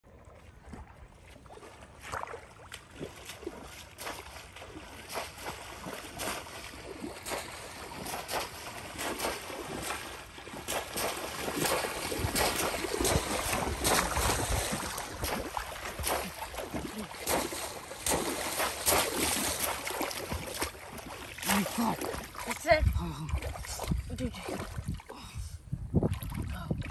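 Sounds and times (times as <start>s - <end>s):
water splashing: 0.1s - 25.3s.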